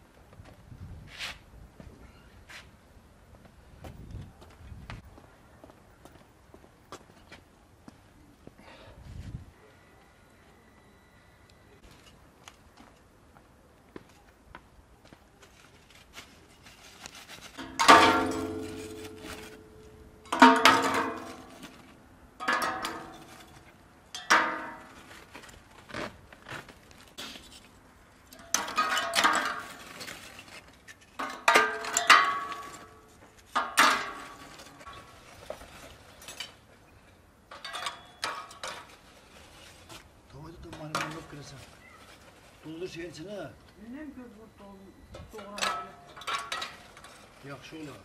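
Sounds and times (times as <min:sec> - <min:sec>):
metal clanks ringing: 0:17.6 - 0:21.8, 0:22.4 - 0:25.0, 0:31.2 - 0:35.1, 0:37.5 - 0:38.8.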